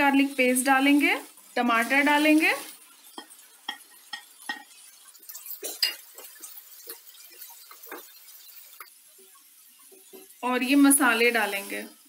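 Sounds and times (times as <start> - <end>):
spatula clinking on plate and pan: 3.1 - 8.3.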